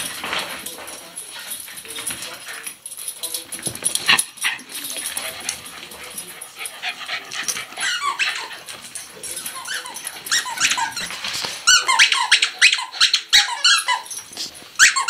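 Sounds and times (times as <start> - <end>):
squeaky toy squeaking: 7.8 - 8.5, 9.6 - 14.2, 14.8 - 15.0.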